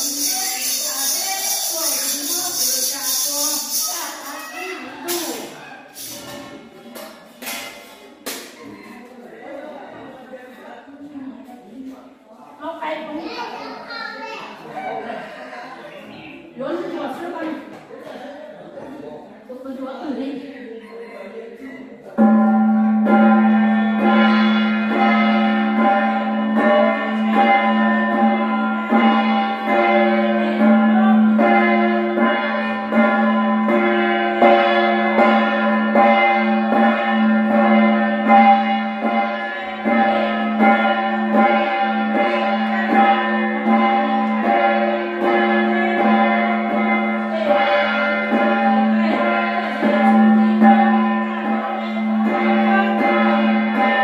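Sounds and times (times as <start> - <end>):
metal ring rattle shaken: 0.0 - 6.4
gong struck in steady rhythm: 22.2 - 54.0.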